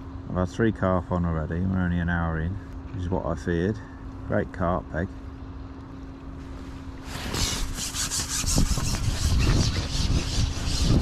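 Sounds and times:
rasping rubbing noise: 7.0s - 11.0s.

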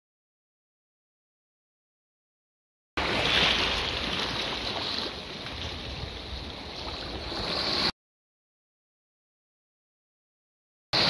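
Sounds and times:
small waves splashing: 3.0s - 7.9s.

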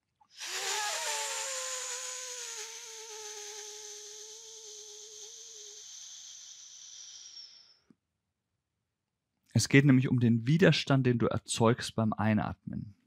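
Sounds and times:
hissing in-breath through lips: 0.3s - 7.8s.

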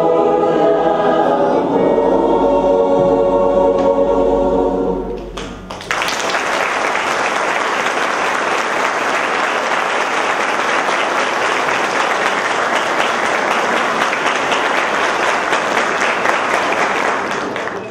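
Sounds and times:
crowd applause: 5.4s - 17.9s.

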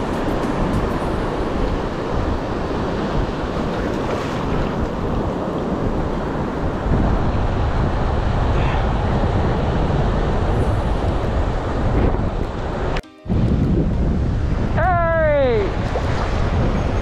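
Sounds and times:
sea surf on shore: 0.0s - 17.0s
wind buffeting microphone: 0.0s - 17.0s.

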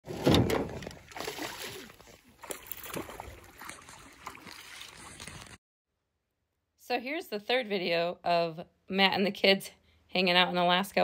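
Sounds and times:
water splashing against a boat: 0.1s - 5.6s.

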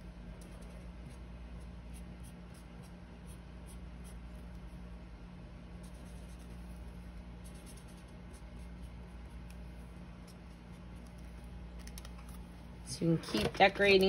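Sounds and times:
steady low hum: 0.0s - 14.0s
marker scratching on paper: 0.4s - 4.8s, 5.8s - 12.4s.

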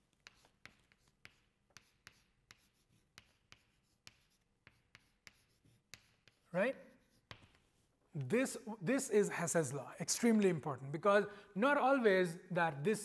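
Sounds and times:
chalk tapping on blackboard: 0.0s - 8.6s.

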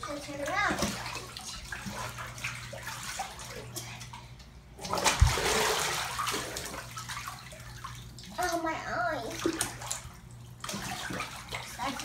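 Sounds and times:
low pump hum: 0.0s - 12.0s
water churning in bathtub: 0.0s - 12.0s
water splash and thump: 0.3s - 4.2s, 4.8s - 8.6s, 9.2s - 12.0s.

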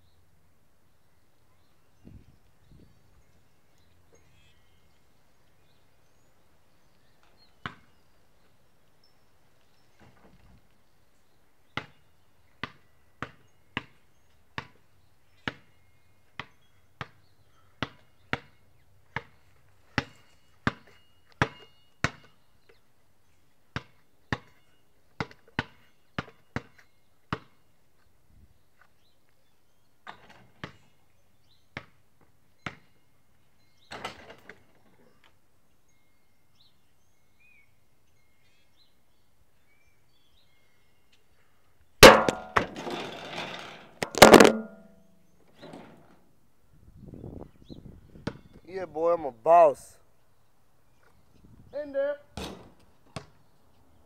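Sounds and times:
basketball bouncing on concrete: 14.6s - 14.8s, 25.2s - 27.6s, 42.0s - 43.0s, 44.0s - 44.9s, 52.4s - 53.4s.

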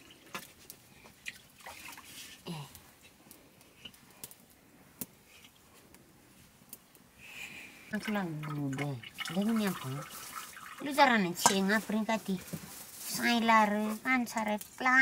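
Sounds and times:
liquid dripping into metal bowl: 7.9s - 11.6s
pots clinking: 8.0s - 11.8s.

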